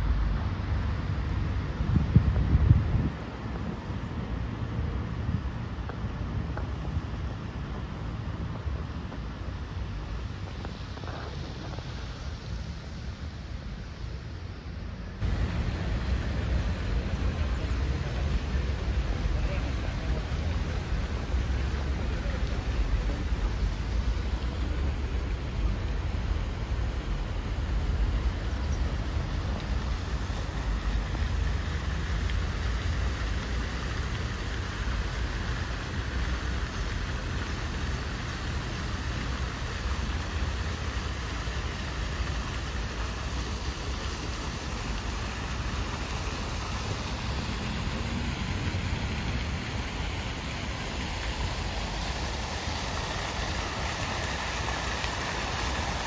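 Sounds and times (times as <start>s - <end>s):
fountain water splashing: 0.0s - 56.0s.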